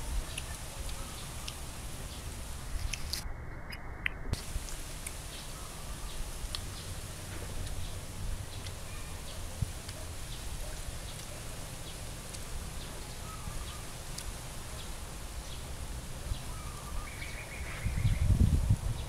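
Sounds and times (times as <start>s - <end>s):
wind rumble on microphone: 0.0s - 19.0s
bird chirps and calls: 5.2s - 14.0s, 16.3s - 18.4s.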